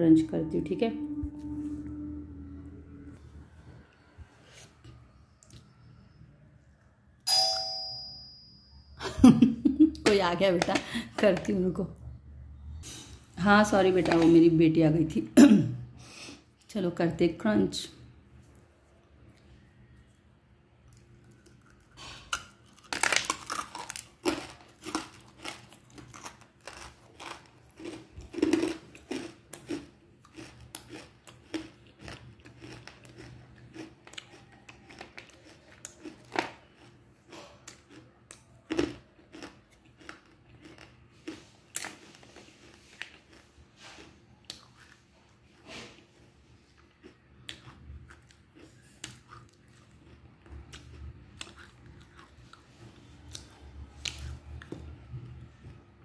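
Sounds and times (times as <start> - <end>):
crunchy chewing: 20.8 - 45.6, 46.6 - 54.7.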